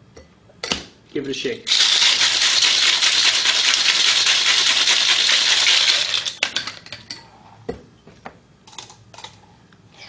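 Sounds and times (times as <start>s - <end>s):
ice rattling in cocktail shaker: 1.7s - 7.1s.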